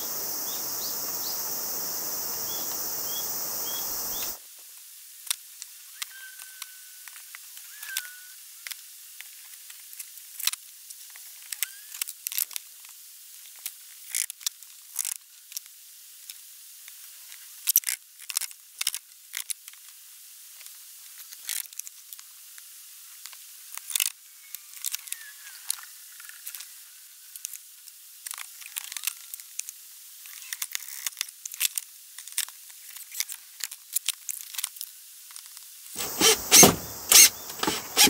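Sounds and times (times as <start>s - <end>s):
hands handling wooden table parts: 36.0s - 38.0s.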